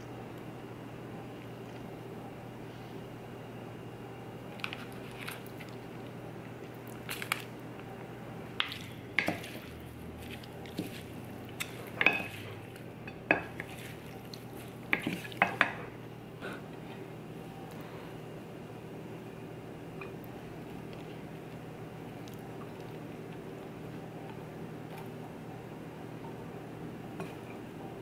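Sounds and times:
wooden spoons clacking on plate: 11.6s - 12.5s.

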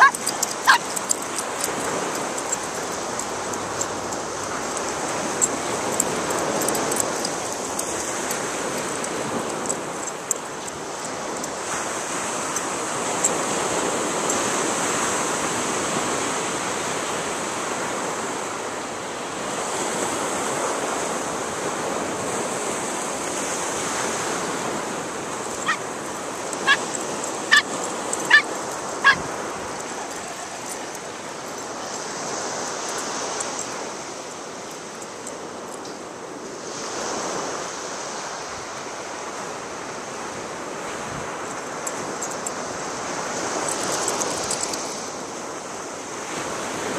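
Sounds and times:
dog barking: 0.0s - 1.8s, 25.5s - 32.0s
surf rushing: 0.0s - 16.8s.

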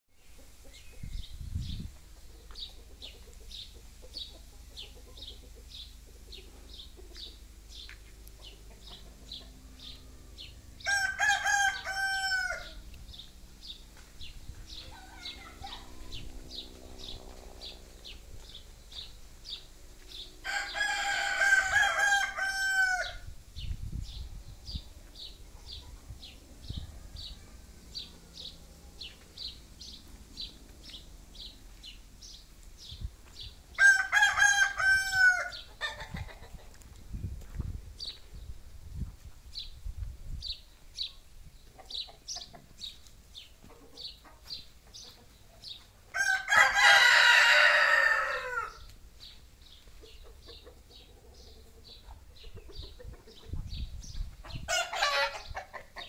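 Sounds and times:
rooster crowing: 10.0s - 12.8s, 20.4s - 23.3s, 26.8s - 27.8s, 33.8s - 36.0s, 46.1s - 48.8s.

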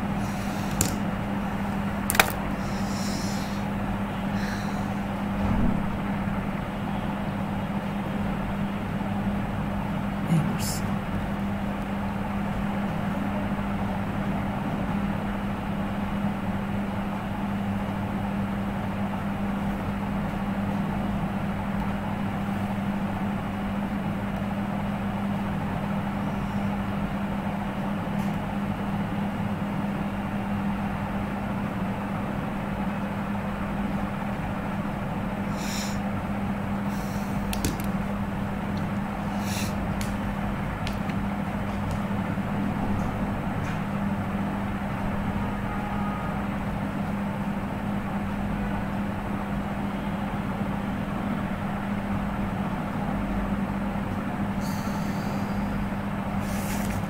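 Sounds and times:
even hiss: 2.6s - 3.7s, 35.5s - 36.0s, 39.3s - 39.8s, 54.6s - 55.8s.

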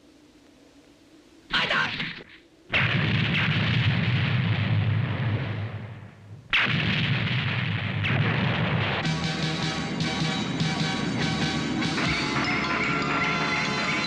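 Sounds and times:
cartoon explosion with rumble: 2.7s - 9.2s.

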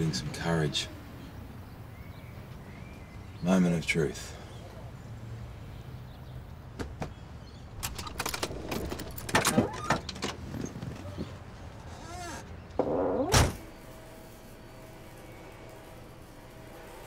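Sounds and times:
car door creaking: 7.8s - 13.6s
car door shutting thud: 13.2s - 13.6s.

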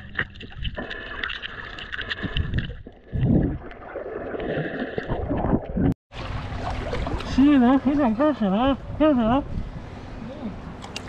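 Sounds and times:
water sloshing underwater: 0.0s - 8.2s
low rush of water: 6.1s - 9.3s.

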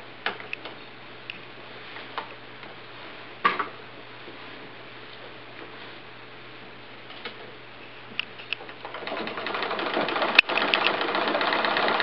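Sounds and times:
sewing machine clatter: 8.6s - 12.0s
mechanical clicks: 9.6s - 12.0s.

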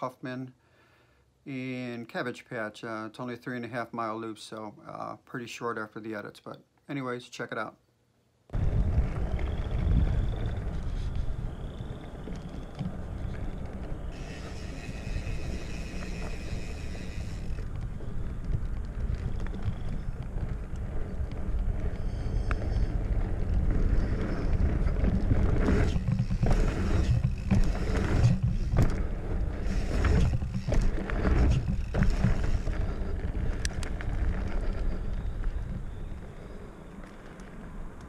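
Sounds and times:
bike tyres rumbling on dirt: 8.5s - 38.0s
wind buffeting microphone: 8.5s - 38.0s
bike knocking and rattling: 8.6s - 36.3s.

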